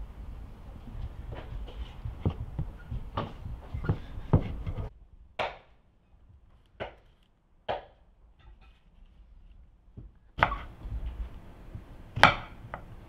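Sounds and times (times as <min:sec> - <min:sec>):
rolling pin working dough: 0:00.8 - 0:04.9
knocks of wood on wood: 0:06.8 - 0:07.1, 0:12.2 - 0:12.9.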